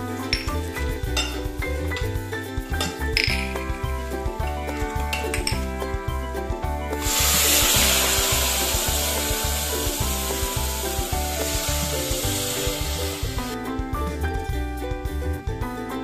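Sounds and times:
background music with steady beat: 0.0 - 16.0
loud sizzling hiss of hot oil: 7.0 - 13.6.

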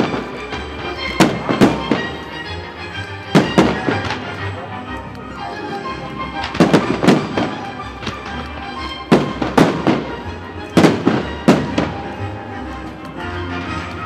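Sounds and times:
fireworks bangs: 0.0 - 2.4, 3.3 - 4.5, 6.4 - 12.2
music: 0.0 - 14.0
small firework pops: 6.4 - 12.1.

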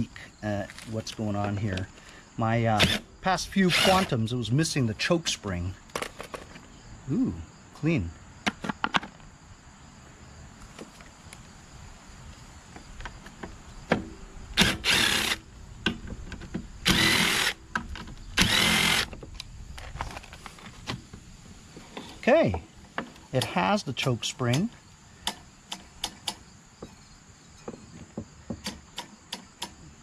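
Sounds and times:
cordless impact driver: 2.8 - 3.0, 3.7 - 4.1, 14.6 - 15.4, 16.8 - 17.6, 18.4 - 19.2.

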